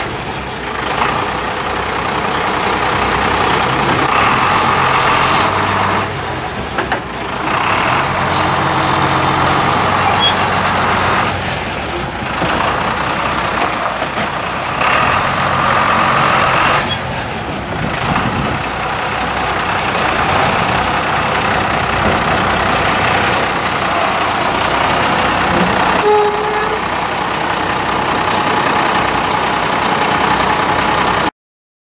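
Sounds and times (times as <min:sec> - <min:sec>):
diesel engine running: 0:00.0 - 0:31.3.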